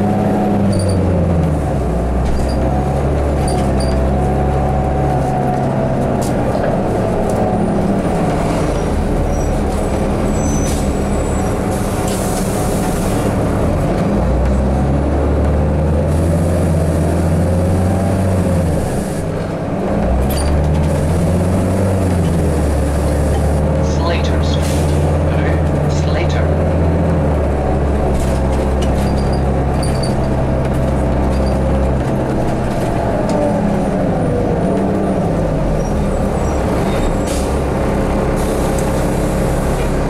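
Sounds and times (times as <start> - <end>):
bus engine drone: 0.0 - 40.0
road noise: 0.0 - 40.0
rattles and squeaks: 0.7 - 1.2, 2.2 - 4.3, 8.5 - 12.5, 20.2 - 21.0, 28.1 - 33.0.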